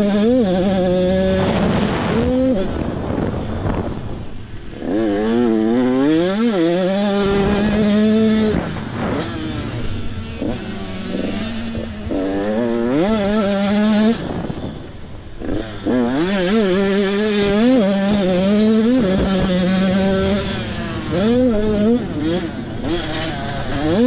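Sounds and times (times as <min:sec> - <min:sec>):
motocross bike engines revving: 0:00.0 - 0:24.0.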